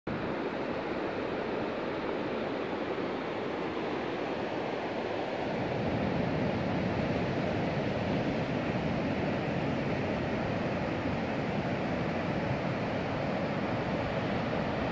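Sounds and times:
sea surf breaking on a beach: 0.1s - 14.9s
wind on the microphone: 3.8s - 14.9s.

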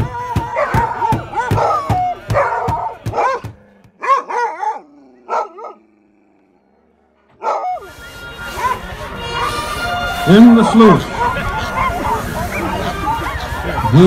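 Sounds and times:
dogs barking: 0.0s - 6.6s, 7.3s - 7.9s, 8.5s - 9.1s, 10.6s - 14.0s.

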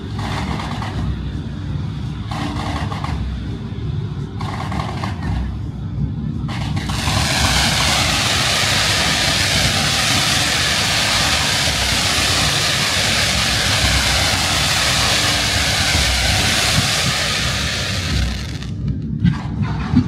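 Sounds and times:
fireworks fountain hissing: 6.7s - 18.8s.

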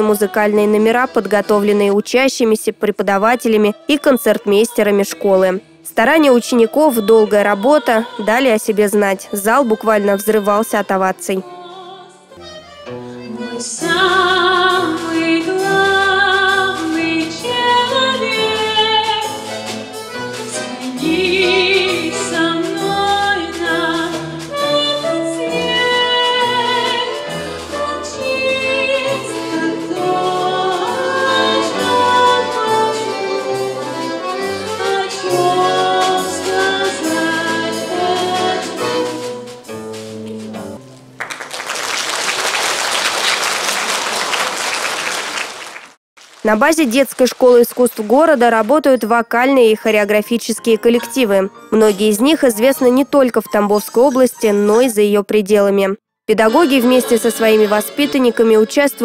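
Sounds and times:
balalaika ensemble playing: 0.0s - 7.2s, 12.4s - 45.9s, 49.6s - 55.0s, 56.3s - 59.0s
woman singing with vibrato: 0.0s - 12.3s, 13.2s - 19.6s, 20.5s - 39.5s, 56.3s - 59.0s
audience applause: 41.2s - 48.3s.

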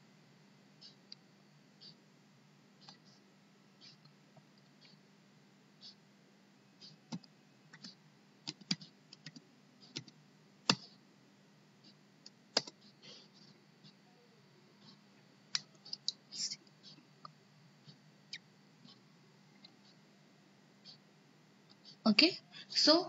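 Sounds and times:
faint steady hum: 0.0s - 23.0s
mouse and keyboard clicks: 7.1s - 11.0s, 12.6s - 12.9s.

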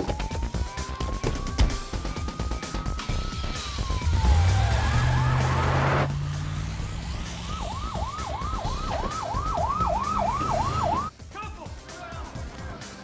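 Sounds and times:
police siren wailing and yelping: 0.0s - 6.1s, 7.1s - 11.1s.

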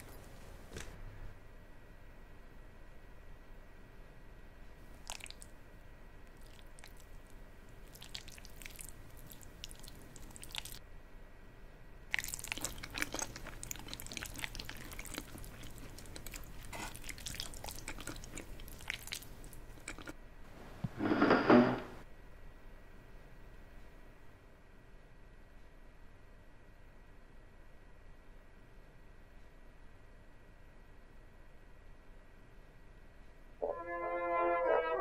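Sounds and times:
wet chewing and biting: 5.0s - 5.5s, 6.3s - 10.8s, 12.1s - 20.2s.

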